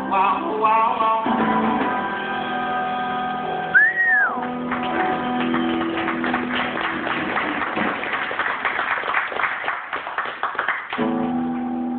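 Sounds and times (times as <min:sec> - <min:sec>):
small band playing: 0:00.0 - 0:09.2, 0:10.5 - 0:11.9
audience clapping: 0:04.2 - 0:11.7.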